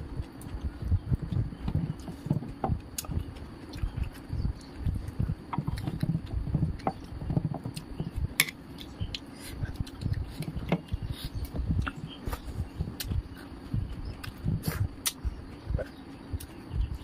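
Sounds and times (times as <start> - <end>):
person chewing: 0.2 - 7.2, 8.8 - 15.2.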